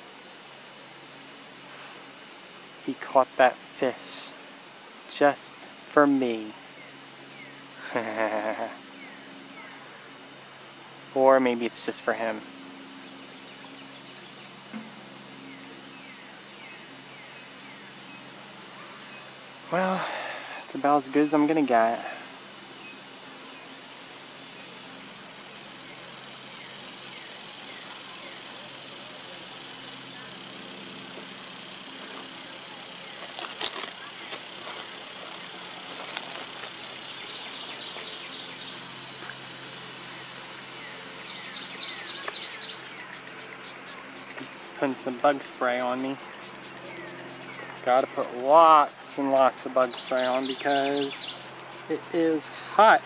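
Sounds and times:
insect drone: 0.0 - 53.0.

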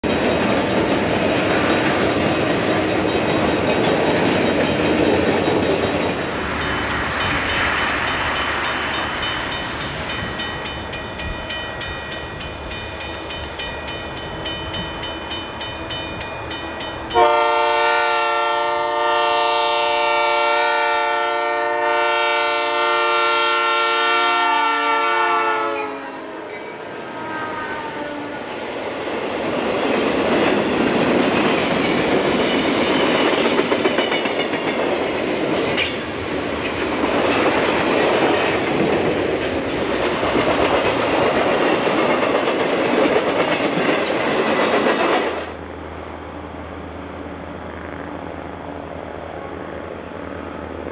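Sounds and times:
locomotive air horn blast: 17.1 - 28.7.

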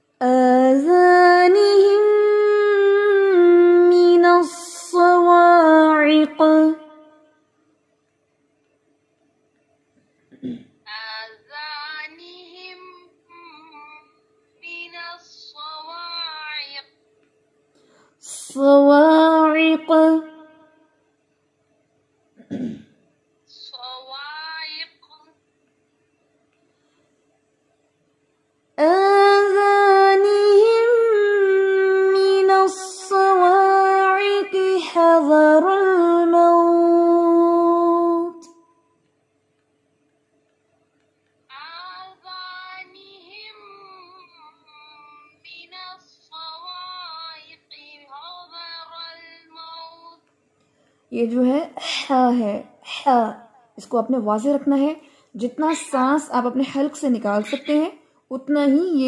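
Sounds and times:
faint steady hum: 0.0 - 59.0
woman chanting melodic recitation: 0.2 - 7.1, 10.9 - 16.9, 18.2 - 20.6, 28.8 - 38.4, 41.5 - 50.2, 51.1 - 59.0.

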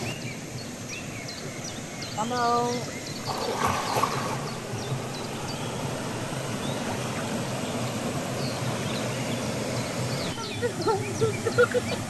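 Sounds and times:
waterfall rushing: 3.3 - 12.0.

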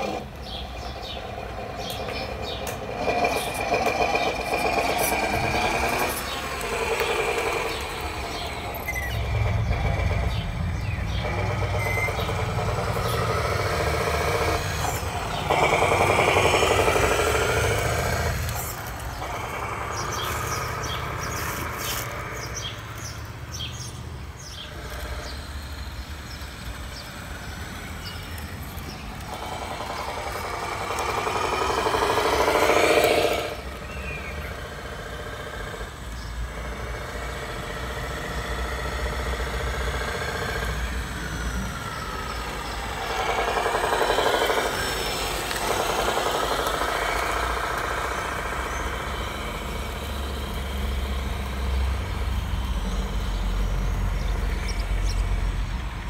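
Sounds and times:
simulated diesel engine through speaker: 0.0 - 56.0.

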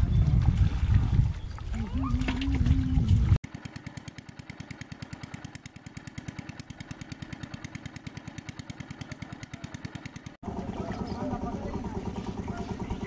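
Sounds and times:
small engine running: 3.4 - 13.0.

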